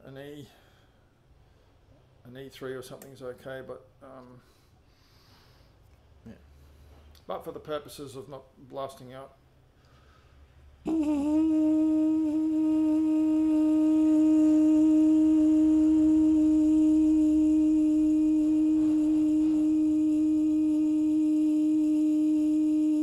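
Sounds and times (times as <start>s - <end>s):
muted trumpet long held note: 10.9s - 23.0s.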